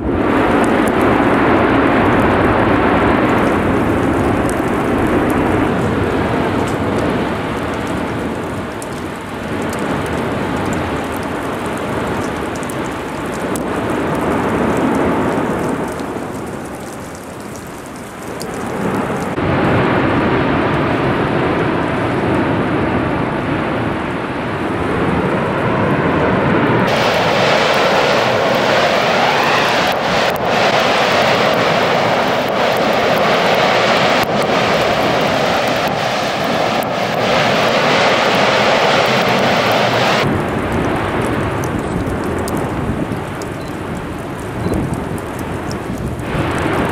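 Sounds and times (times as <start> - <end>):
lava fountain roaring: 0.0 - 46.9
sharp cracks: 0.4 - 19.4, 26.9 - 46.9.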